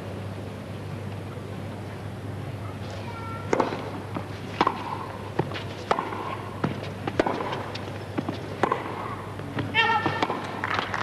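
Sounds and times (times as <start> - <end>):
rackets hitting tennis ball: 3.5 - 11.0
tennis ball bouncing: 3.5 - 11.0.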